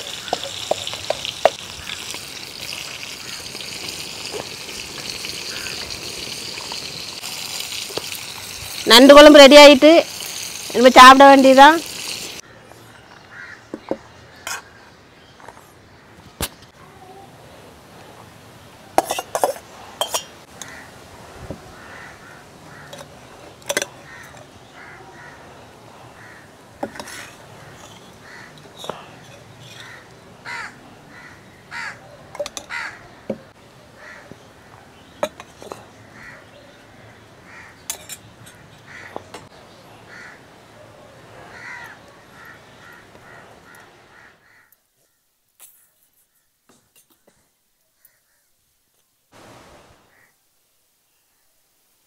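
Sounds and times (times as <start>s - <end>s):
crows cawing: 5.4s - 5.9s, 13.3s - 13.7s, 20.6s - 20.9s, 21.7s - 23.1s, 24.0s - 29.0s, 29.8s - 32.0s, 32.6s - 33.4s, 34.0s - 34.8s, 36.0s - 37.8s, 38.5s - 39.3s, 40.1s - 40.4s, 41.4s - 45.2s, 50.1s - 50.4s
steel vessel clinking: 19.0s - 20.4s, 37.9s - 38.6s.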